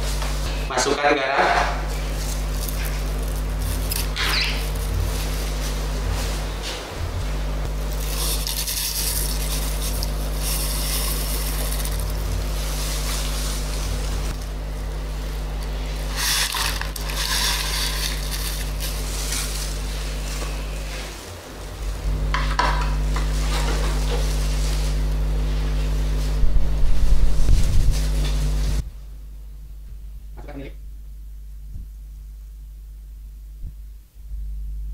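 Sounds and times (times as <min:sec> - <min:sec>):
steady low hum: 0:00.0 - 0:34.9
batter stirred in a wok: 0:01.9 - 0:05.8, 0:07.7 - 0:13.8, 0:15.4 - 0:20.3
scraping and sloshing: 0:15.8 - 0:20.4.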